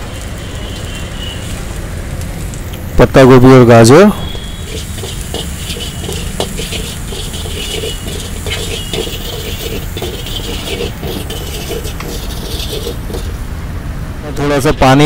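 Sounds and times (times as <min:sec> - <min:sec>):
metal ladle scraping a wok: 0:04.6 - 0:13.5.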